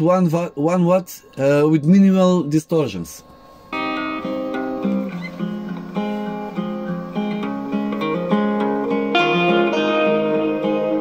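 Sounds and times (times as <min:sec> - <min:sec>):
acoustic guitar plucked melody: 0:03.7 - 0:11.0.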